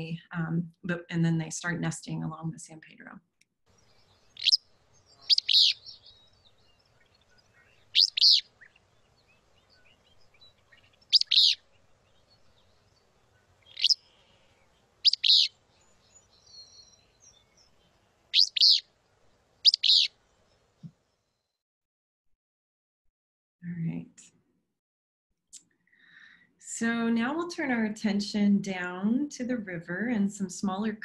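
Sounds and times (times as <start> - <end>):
flycatcher song: 3.8 - 18.8, 19.6 - 20.2.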